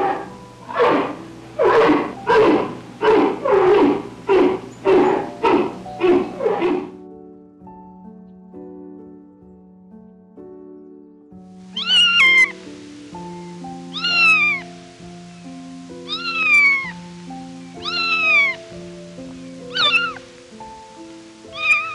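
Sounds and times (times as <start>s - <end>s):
soft background music: 0.0s - 21.9s
kitten meowing: 11.8s - 12.6s, 13.9s - 14.6s, 16.1s - 17.0s, 17.8s - 18.6s, 19.7s - 20.2s, 21.5s - 21.9s.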